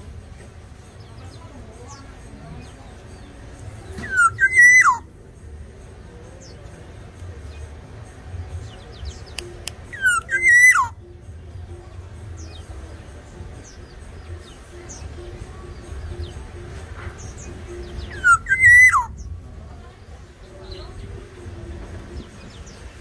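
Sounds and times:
bird whistled calls: 4.0s - 5.0s, 9.9s - 11.0s, 18.0s - 19.3s
faint small bird chirps: 4.0s - 5.0s, 9.2s - 11.0s, 18.1s - 19.2s.

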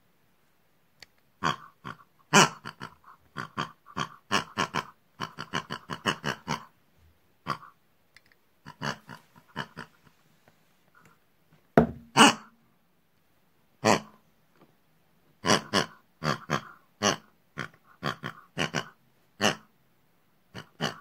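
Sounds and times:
voiced pig grunts: 1.4s - 6.7s, 7.4s - 7.8s, 8.6s - 10.0s, 15.4s - 19.7s, 20.5s - 21.0s.

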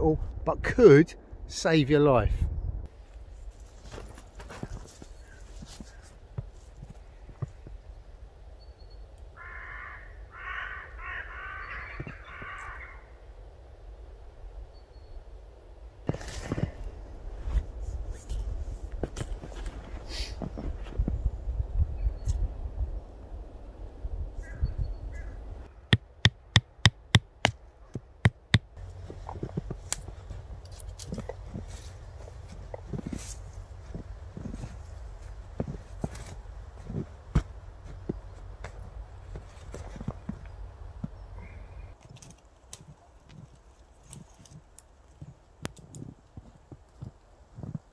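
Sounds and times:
footsteps crunching through snow: 3.0s - 7.5s, 16.1s - 21.2s, 28.8s - 40.5s
crow cawing: 9.4s - 13.1s, 24.4s - 25.4s.

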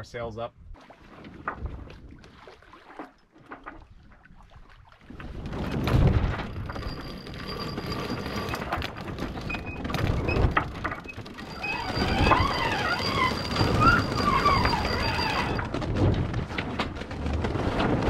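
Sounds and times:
short squeaks: 6.4s - 15.8s.

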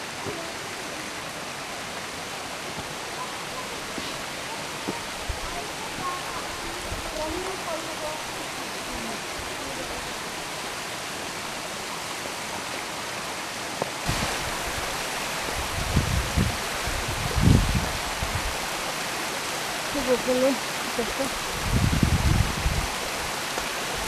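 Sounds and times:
stream and waterfall rushing: 0.0s - 24.0s.

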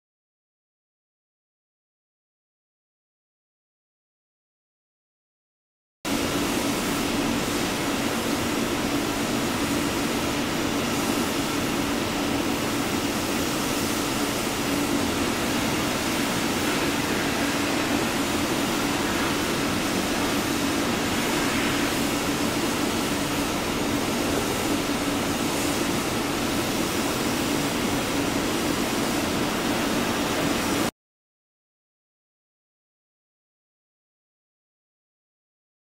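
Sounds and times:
low mechanical hum: 6.1s - 30.9s
steady hiss: 6.1s - 30.9s.

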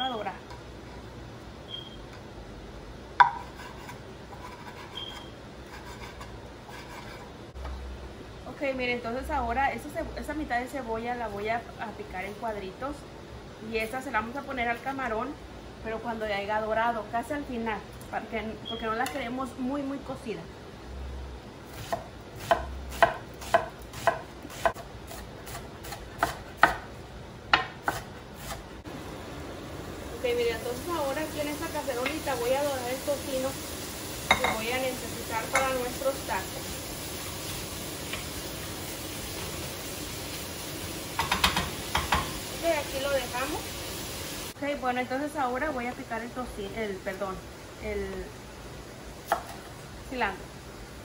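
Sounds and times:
knife chopping on wooden board: 21.8s - 26.9s, 27.5s - 28.6s.

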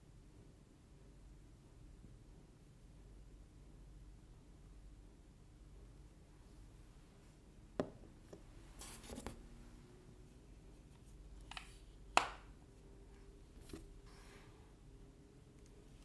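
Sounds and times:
plastic case tapping on table: 7.8s - 8.0s.

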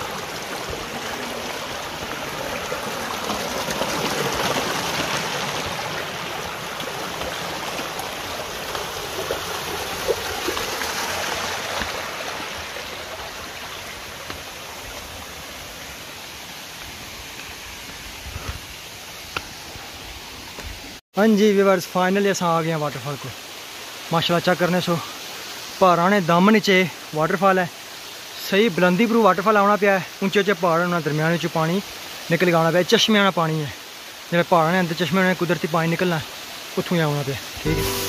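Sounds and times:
stream trickling over rocks: 0.0s - 38.0s.

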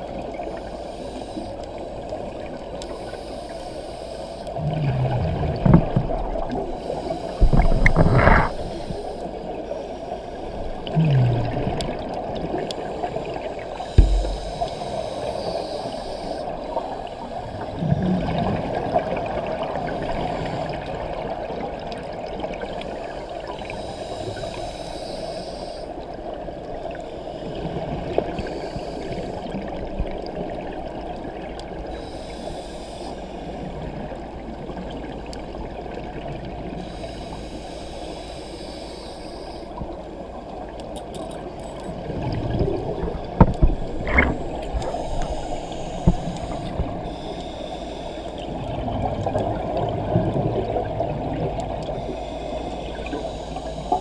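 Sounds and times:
scuba regulator breathing hiss: 0.5s - 1.8s, 2.8s - 4.6s, 6.8s - 10.6s, 12.8s - 17.7s, 22.8s - 26.1s, 27.1s - 29.7s, 31.9s - 33.9s, 36.8s - 39.9s, 43.8s - 48.7s, 51.8s - 54.0s
exhaled bubbles underwater: 4.6s - 6.8s, 10.7s - 22.8s, 42.0s - 47.2s, 48.4s - 52.3s
loud knocks: 14.0s - 14.7s.

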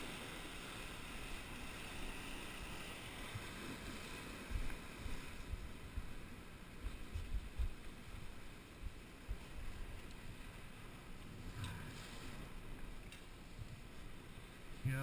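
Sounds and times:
surf washing against rocks: 0.0s - 15.0s
wind on microphone: 3.4s - 10.1s
low thumps buffeting microphone: 4.5s - 6.2s, 6.8s - 9.9s.

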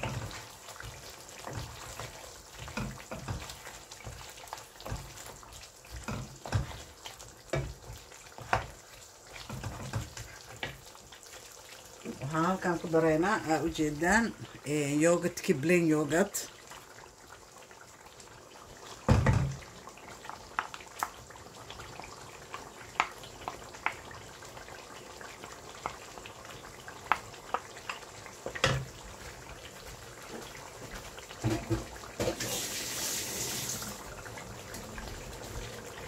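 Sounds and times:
wooden spoon tapping and scraping bowl: 7.5s - 8.8s, 9.4s - 10.8s.

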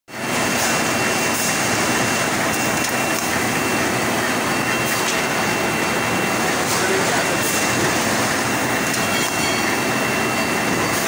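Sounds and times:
machine rumble and roller clatter: 0.1s - 11.0s.

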